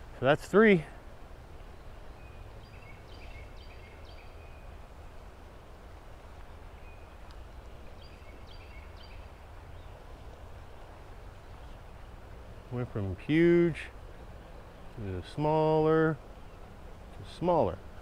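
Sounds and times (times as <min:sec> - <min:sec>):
bird singing clear notes: 0:01.7 - 0:04.8, 0:06.4 - 0:10.8.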